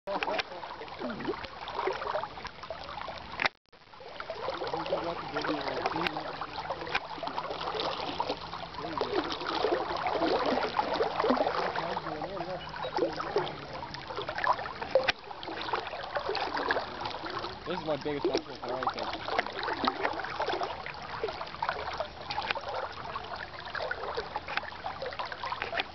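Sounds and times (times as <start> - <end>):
river water flowing: 0.1 - 25.9.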